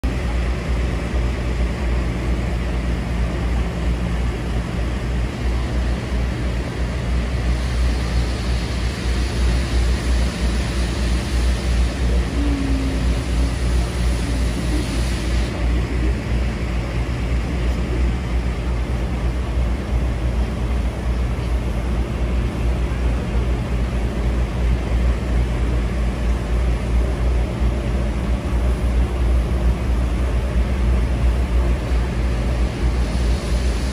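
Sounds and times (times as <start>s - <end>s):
train carriage rumble: 0.0s - 33.9s
steam hissing: 5.4s - 19.2s, 29.0s - 33.9s.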